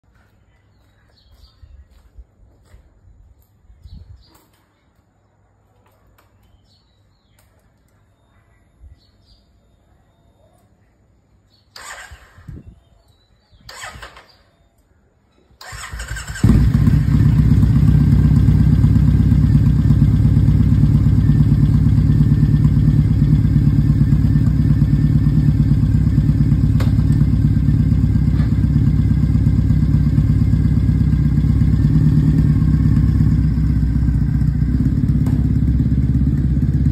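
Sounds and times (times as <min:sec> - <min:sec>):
motorcycle engine bursts: 0:11.8 - 0:12.5, 0:13.7 - 0:14.4, 0:15.6 - 0:36.9
motorcycle engine idling: 0:15.6 - 0:36.9.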